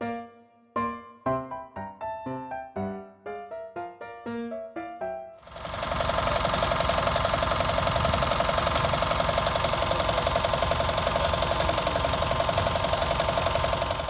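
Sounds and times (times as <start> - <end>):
motorcycle engine idling: 5.4 - 14.0.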